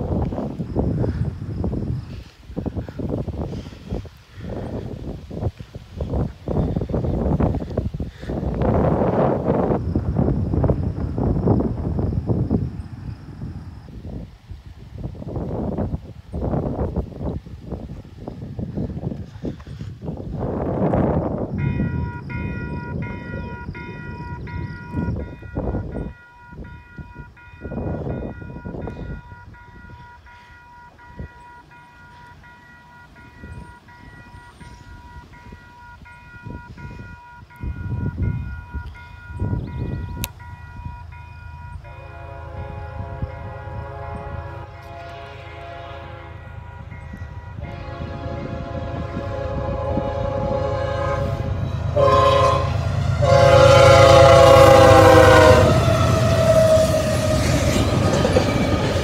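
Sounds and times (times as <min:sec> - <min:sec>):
wind buffeting microphone: 0:00.0 - 0:59.0
railroad crossing bell clanging: 0:20.9 - 0:59.0
locomotive horn blasts: 0:40.2 - 0:58.8.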